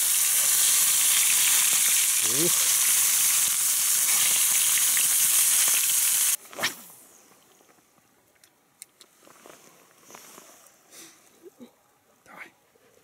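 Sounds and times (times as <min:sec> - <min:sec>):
fish sizzling in a pan: 0:00.0 - 0:06.4
faint ticks and rustles: 0:07.2 - 0:11.4.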